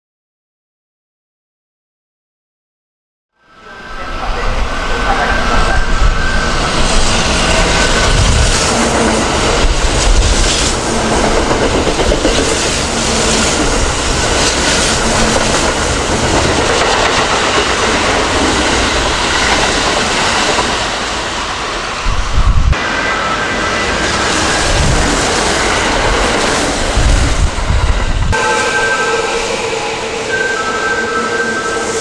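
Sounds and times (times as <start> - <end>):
electric train running: 3.6 - 32.0
wheels clacking over rail joints: 7.0 - 21.1.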